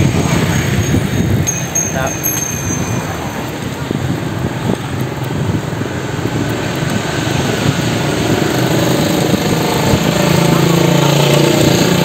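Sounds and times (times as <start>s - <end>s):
street traffic engines: 0.0s - 12.0s
wind on microphone: 0.0s - 12.0s.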